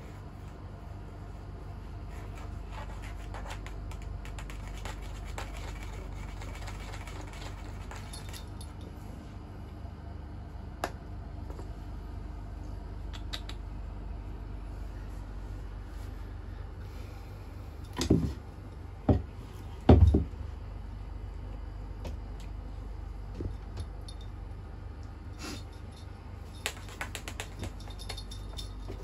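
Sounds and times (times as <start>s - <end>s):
cat paws tapping wooden floor: 26.6s - 29.0s.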